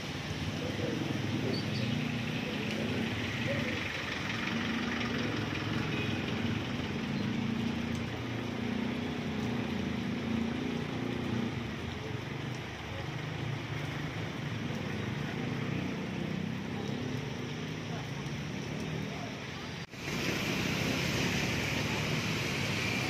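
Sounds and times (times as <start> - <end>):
vehicle engine humming: 0.0 - 23.0
hiss of wet road: 16.9 - 23.0.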